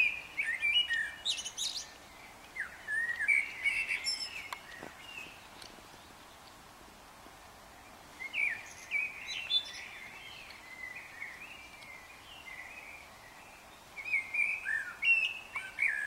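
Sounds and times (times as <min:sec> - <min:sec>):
songbird warbling: 0:00.0 - 0:06.5, 0:07.8 - 0:16.0.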